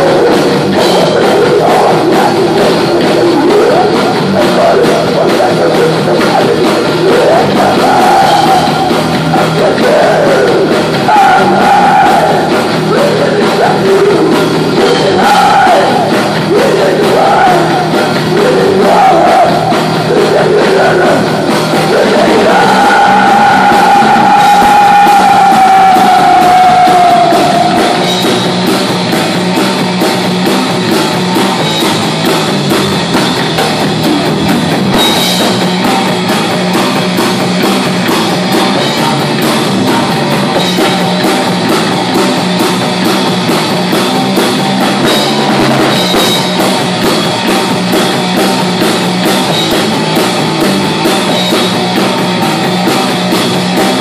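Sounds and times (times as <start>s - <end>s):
shouted and sung vocals: 0.0s - 28.6s
distorted electric guitar: 0.0s - 54.0s
drums: 0.0s - 54.0s
heavy metal band playing: 0.0s - 54.0s.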